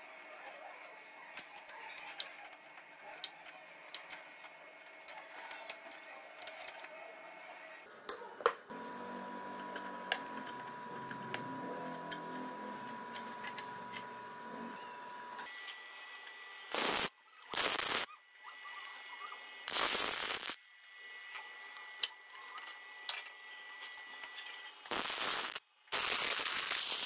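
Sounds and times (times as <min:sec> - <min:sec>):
steady high-toned hum: 0:08.7 - 0:25.5.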